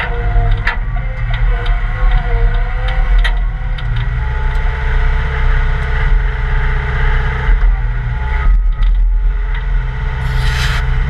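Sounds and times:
diesel engine under load: 0:00.0 - 0:11.0
steady whine: 0:09.8 - 0:11.0.

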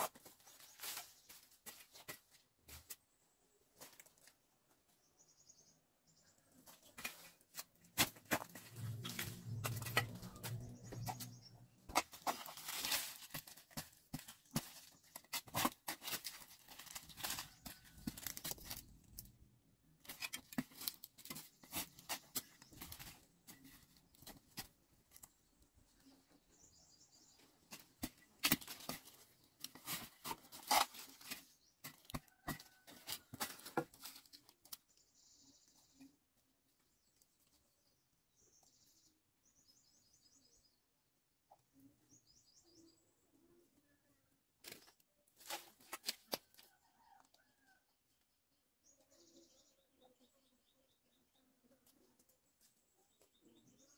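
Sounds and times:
soil clods crumbling: 0:07.0 - 0:19.4.

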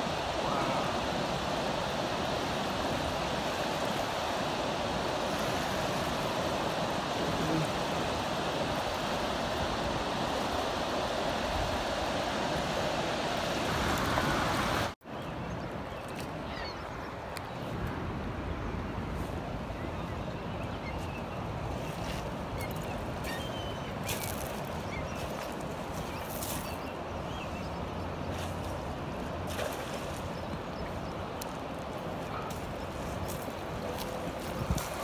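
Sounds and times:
river water rushing over dam: 0:00.0 - 0:15.0.

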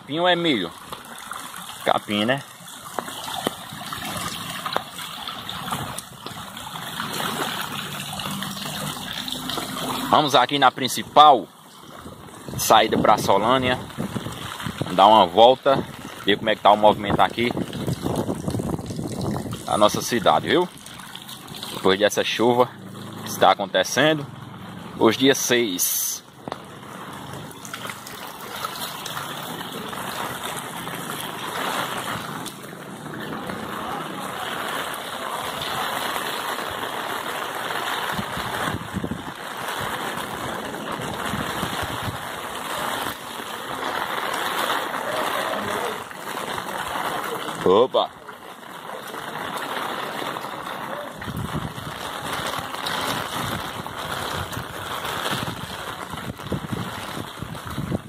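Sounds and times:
rain on cobblestones: 0:00.0 - 0:58.0
wind rumbling on microphone: 0:11.8 - 0:21.8, 0:37.9 - 0:47.7, 0:49.5 - 0:58.0.

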